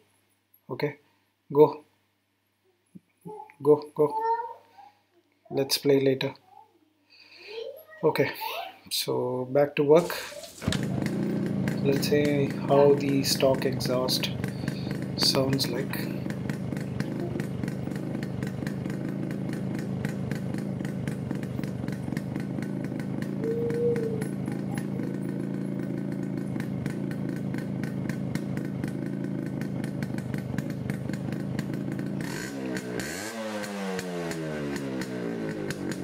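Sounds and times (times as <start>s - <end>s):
two-stroke motorcycle engine running: 10.0s - 36.0s.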